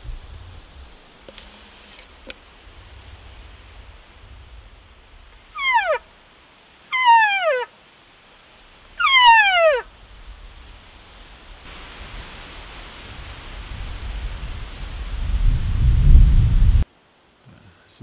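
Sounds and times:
wind on microphone: 0.0 - 6.1, 8.9 - 16.8
elk bugle calls sliding downward: 5.5 - 6.1, 6.9 - 7.8, 9.0 - 9.9.

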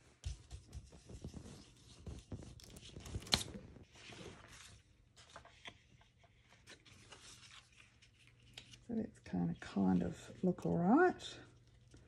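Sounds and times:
paper and stencil handling: 0.1 - 9.0.

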